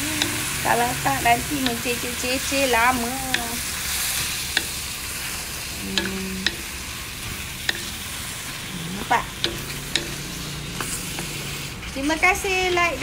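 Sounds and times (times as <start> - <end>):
vegetables sizzling in pan: 0.0 - 13.0
spatula clicking against pan: 0.2 - 0.6, 1.3 - 5.0, 5.9 - 6.9, 7.6 - 8.2, 9.4 - 11.3.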